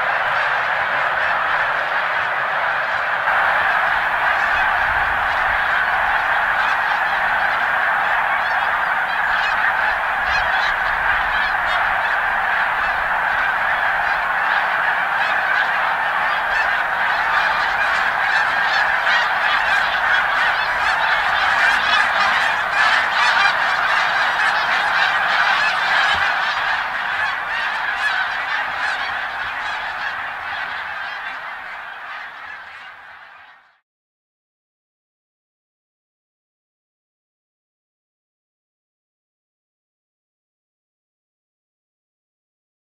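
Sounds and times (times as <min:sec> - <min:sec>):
geese honking: 0:00.0 - 0:33.8.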